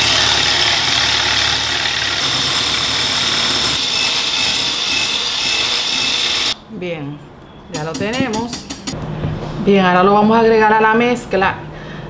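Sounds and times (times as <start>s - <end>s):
electric hand blender whirring: 0.0s - 6.6s.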